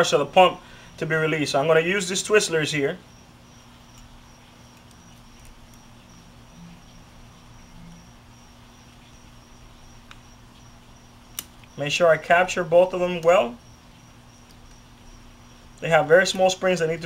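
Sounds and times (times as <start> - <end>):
low hum: 3.1 - 16.2
faint high pulsing tone: 6.0 - 8.3.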